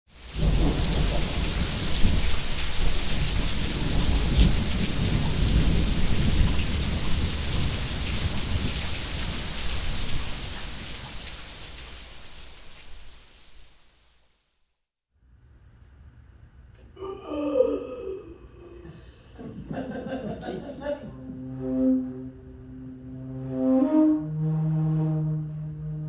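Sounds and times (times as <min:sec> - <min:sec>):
rain hissing: 0:00.1 - 0:14.8
thunder rumbling: 0:00.2 - 0:11.2.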